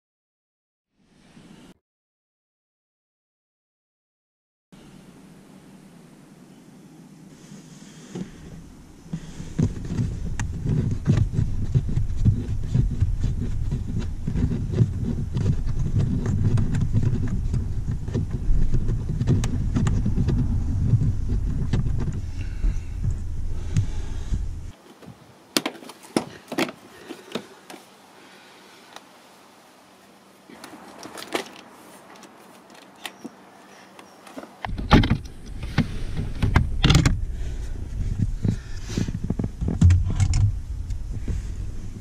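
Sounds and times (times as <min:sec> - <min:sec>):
low rumbling on microphone: 0:07.9 - 0:24.8, 0:34.7 - 0:42.0.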